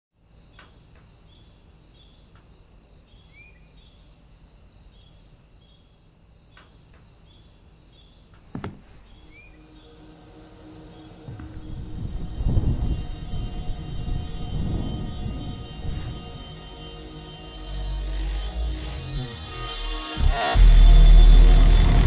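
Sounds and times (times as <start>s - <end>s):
insects chirping: 0.1s - 20.6s
shoe thud on metal mesh: 8.5s - 9.1s.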